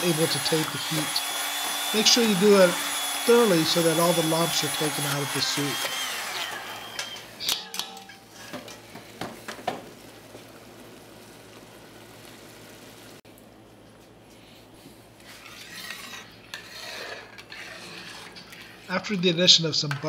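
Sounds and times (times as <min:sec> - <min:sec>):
metal ladle scraping pot: 0:15.2 - 0:19.0.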